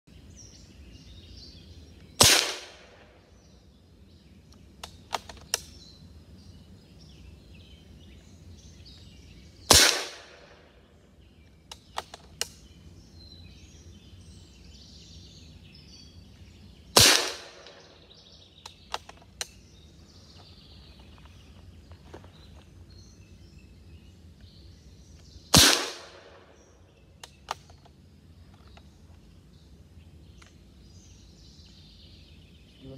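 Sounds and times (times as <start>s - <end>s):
faint birds: 0.0s - 32.9s
outdoor noise: 0.0s - 32.9s
air rifle shots cracking: 2.2s - 3.2s, 9.7s - 10.7s, 17.0s - 18.0s, 25.5s - 26.6s.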